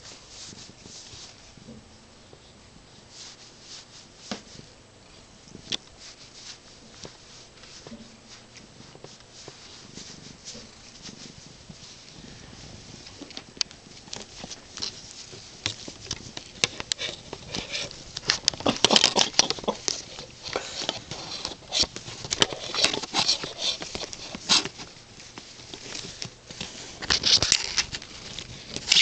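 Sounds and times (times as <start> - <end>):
rustling of cat being rubbed: 0.0 - 1.6, 2.8 - 29.0.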